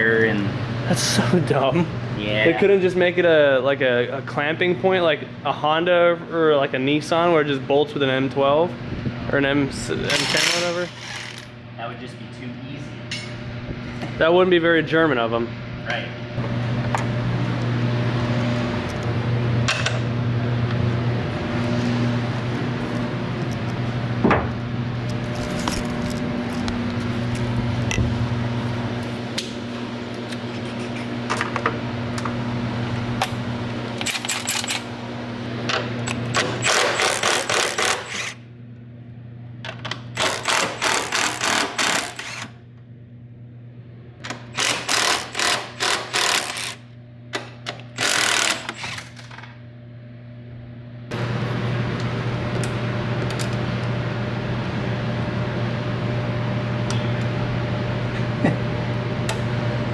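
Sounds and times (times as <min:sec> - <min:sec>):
steady low hum: 0:00.0 - 0:59.9
impact wrench hammering: 0:36.4 - 0:38.4, 0:40.2 - 0:42.4, 0:44.5 - 0:46.8, 0:48.0 - 0:48.9.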